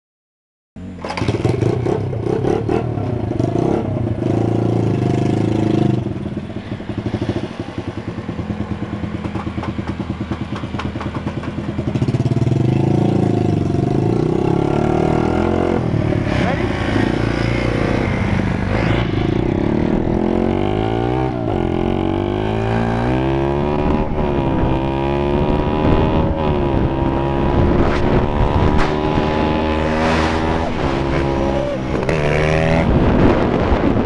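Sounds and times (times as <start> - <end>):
small motorcycle engine revving: 12.0 - 33.5.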